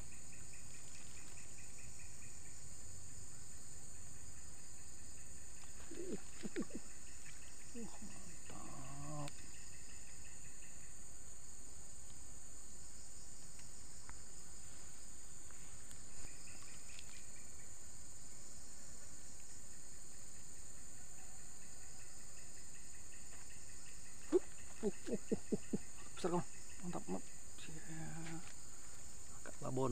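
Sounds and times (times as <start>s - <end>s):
insects chirring: 0.0s - 29.9s.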